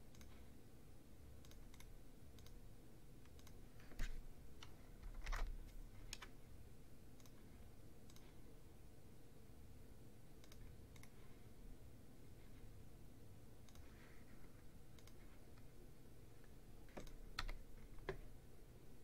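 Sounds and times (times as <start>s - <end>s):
computer mouse clicking: 0.1s - 0.4s, 1.4s - 2.6s, 3.2s - 5.5s, 6.1s - 6.3s, 7.2s - 7.4s, 8.0s - 8.3s, 10.4s - 11.2s, 13.6s - 14.0s, 14.9s - 15.6s, 16.9s - 18.2s.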